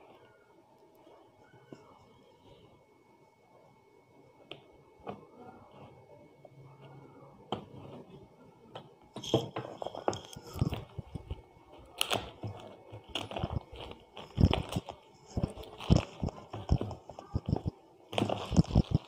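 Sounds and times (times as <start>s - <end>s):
plastic wrapper crinkling: 9.2s - 19.0s.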